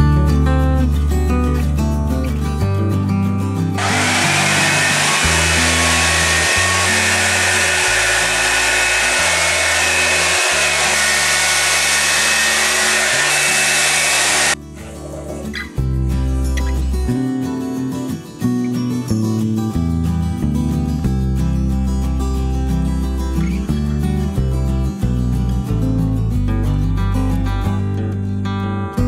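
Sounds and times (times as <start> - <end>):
hot-air brush blowing: 3.8 - 14.6.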